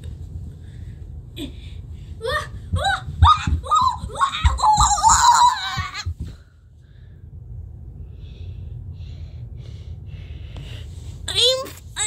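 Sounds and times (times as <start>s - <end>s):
low rumble: 0.0s - 12.0s
child yelling: 2.8s - 6.0s
breathing close to microphone: 6.2s - 11.2s.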